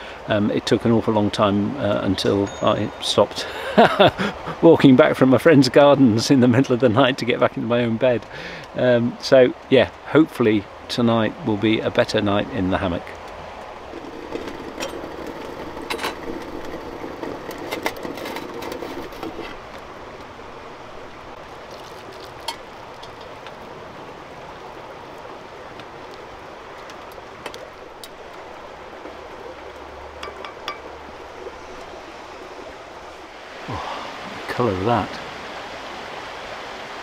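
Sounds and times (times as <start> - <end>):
steady hiss: 0.0 - 13.9, 19.1 - 37.0
metal cookware clinking: 30.2 - 30.9.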